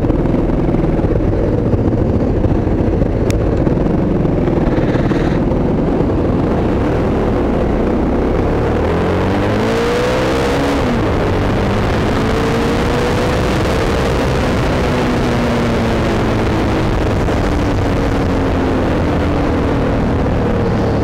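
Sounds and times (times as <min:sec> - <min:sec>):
motorcycle engine running: 0:00.0 - 0:21.0
wind noise on microphone: 0:00.0 - 0:21.0.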